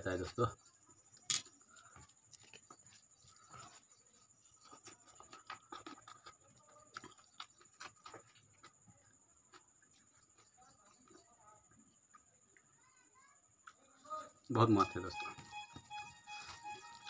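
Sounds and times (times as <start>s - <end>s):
fingers working food by hand: 1.8s - 8.8s
chewing smacks: 1.8s - 11.3s.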